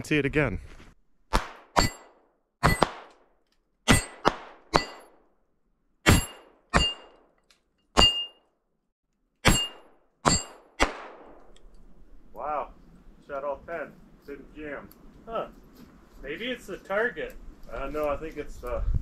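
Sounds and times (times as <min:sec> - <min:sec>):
pistol shots: 0:01.3 - 0:03.2, 0:03.9 - 0:05.2, 0:09.4 - 0:11.4
bullets ringing on metal target: 0:01.8 - 0:02.9, 0:03.9 - 0:05.1, 0:06.1 - 0:07.2, 0:08.0 - 0:08.4, 0:09.4 - 0:10.7.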